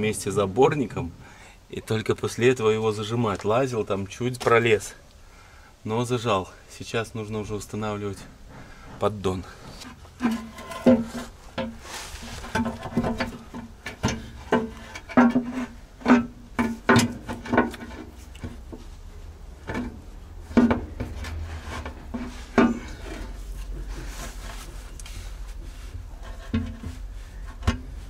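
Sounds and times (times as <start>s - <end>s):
metal oil pan knocking and scraping: 9.8s - 18.7s, 19.6s - 24.5s, 25.6s - 28.0s.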